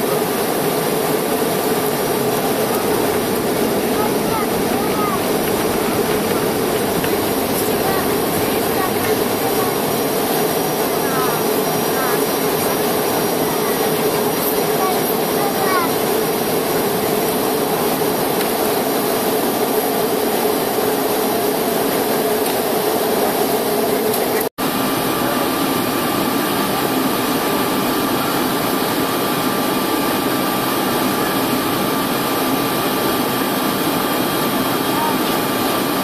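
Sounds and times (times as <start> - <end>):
jet engine rush: 0.0 - 36.0
airflow past fuselage: 0.3 - 13.5.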